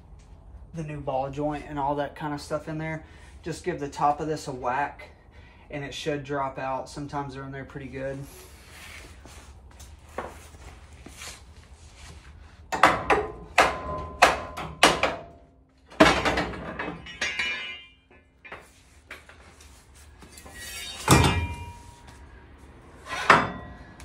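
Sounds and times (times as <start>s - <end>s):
hammer striking metal: 12.8s - 15.3s, 20.7s - 22.1s.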